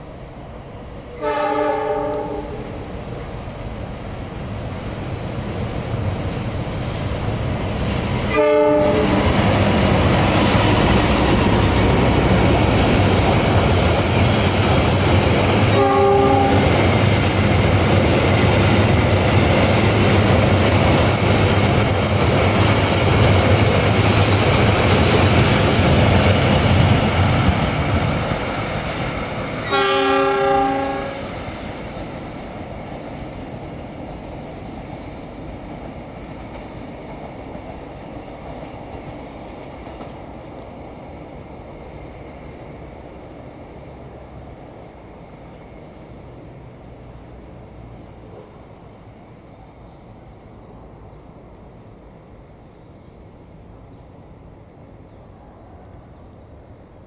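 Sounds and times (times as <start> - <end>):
diesel locomotive engine: 0.0 - 57.0
train wheels on rails: 0.0 - 57.0
train horn: 1.2 - 2.9, 8.3 - 9.4, 15.7 - 16.9, 29.6 - 31.5.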